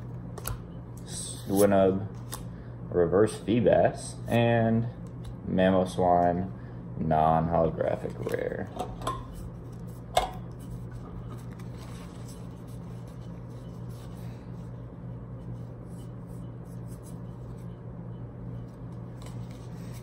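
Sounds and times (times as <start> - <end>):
steady low hum: 0.0 - 20.0
cards rustling: 10.8 - 14.6, 18.8 - 20.0.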